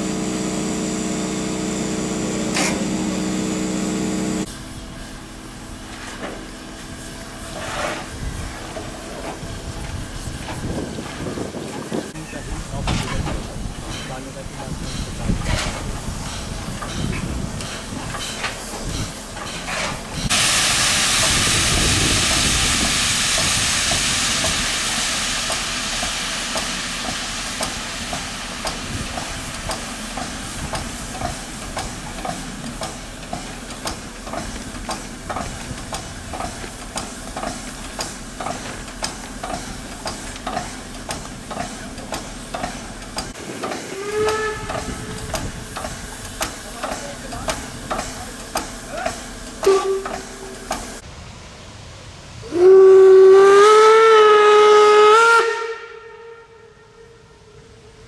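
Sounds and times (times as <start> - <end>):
steam locomotive hissing steam: 0.0 - 56.8
steam locomotive puffing: 5.8 - 51.0.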